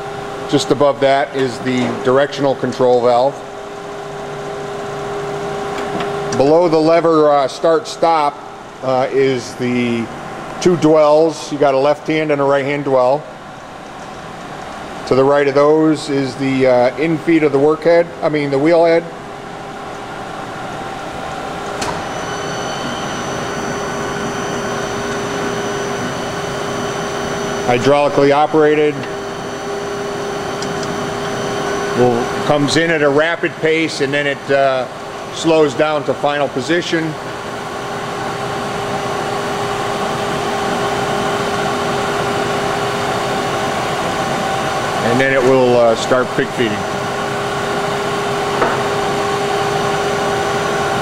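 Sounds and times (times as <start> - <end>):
grinder machine humming: 0.0 - 51.0
high steady whines: 0.0 - 51.0.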